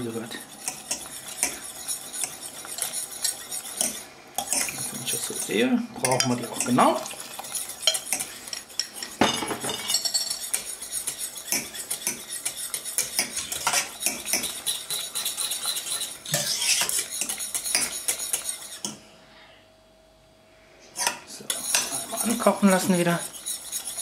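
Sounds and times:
wire whisk scraping steel saucepan: 0.0 - 19.0, 21.0 - 24.0.

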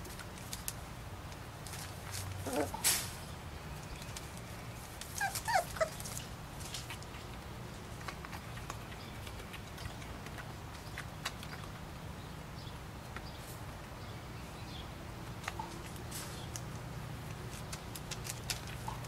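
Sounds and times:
puppies ticking and tapping: 3.8 - 12.0, 15.2 - 19.0
puppy squeaks: 5.2 - 6.1.

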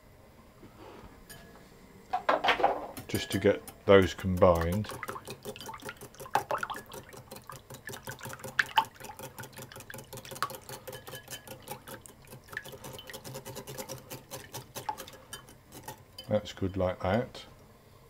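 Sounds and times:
liquid sloshing: 2.7 - 16.3
whisk clicking against bowl: 3.0 - 16.8.

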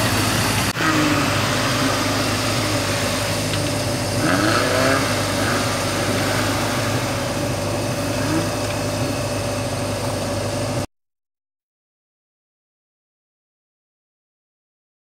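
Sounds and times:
off-road engines running: 0.0 - 10.9
steady whine: 0.0 - 10.9.

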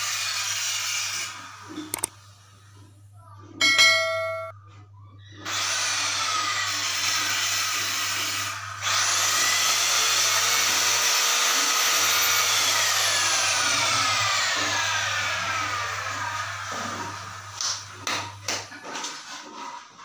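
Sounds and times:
power tool motor running: 5.4 - 18.4.

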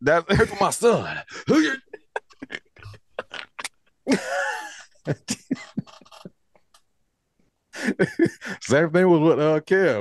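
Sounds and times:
mouth sounds: 1.5 - 3.8.

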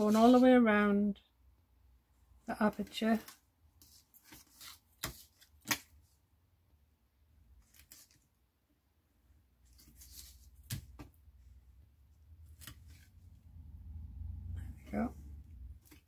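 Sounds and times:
tape and paper rustling: 2.9 - 5.9.

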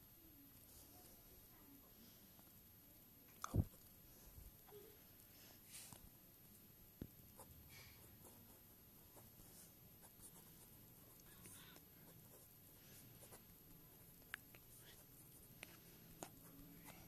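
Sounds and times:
pen scratching on paper: 7.4 - 17.0.

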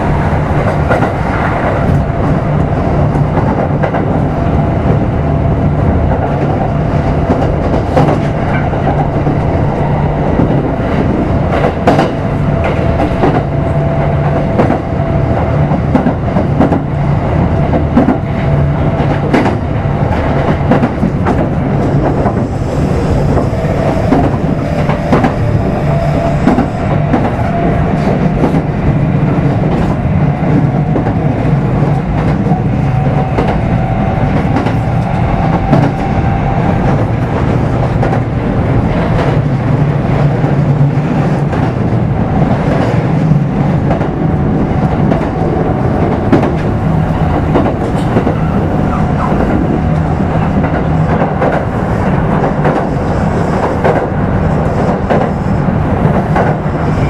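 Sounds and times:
electric train rumbling: 0.0 - 57.0.

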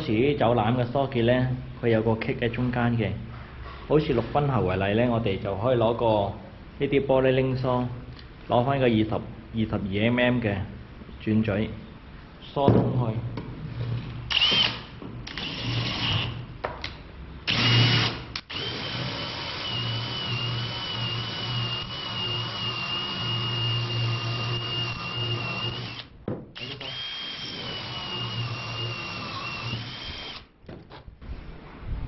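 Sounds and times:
electric drill motor whine: 14.3 - 16.3, 17.5 - 30.5.

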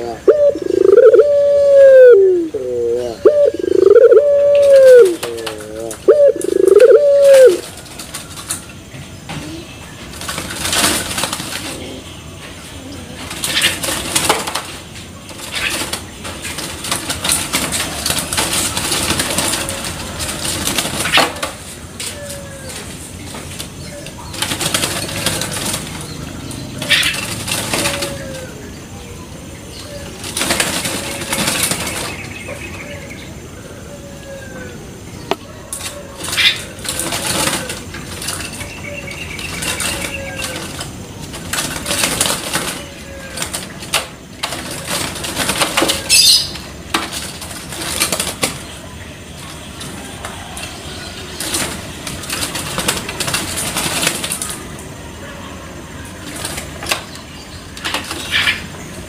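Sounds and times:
dove chick cooing softly: 0.0 - 7.8.

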